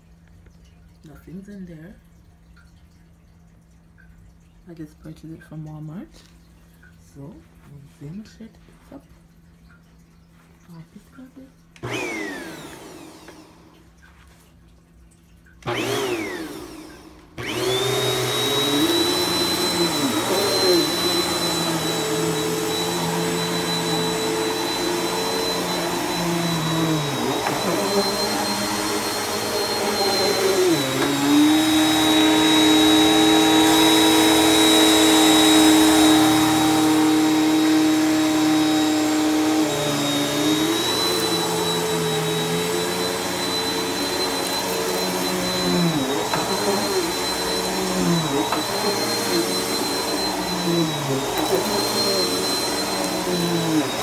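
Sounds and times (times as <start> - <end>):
vacuum cleaner running: 11.8 - 13.8, 15.6 - 54.0.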